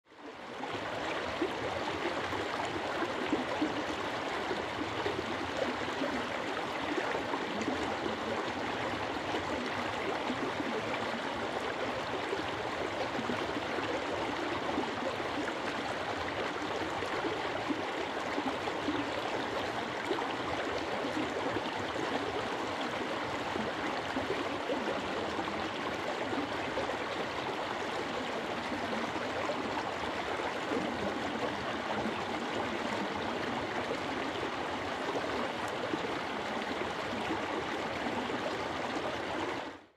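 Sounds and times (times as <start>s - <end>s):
stream running over rocks: 0.1s - 39.9s.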